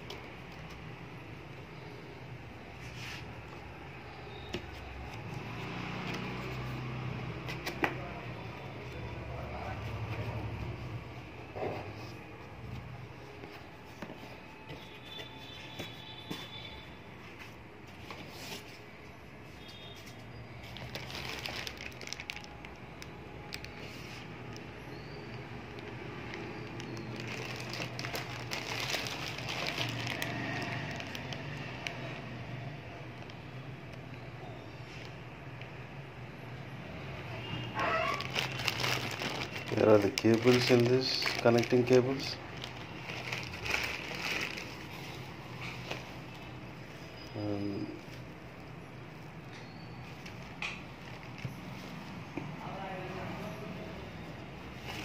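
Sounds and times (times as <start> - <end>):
clicks and taps from packaging: 7.5 - 8.0
plastic bag crinkling: 20.6 - 24.6, 25.3 - 32.0, 37.9 - 46.4, 50.3 - 51.9.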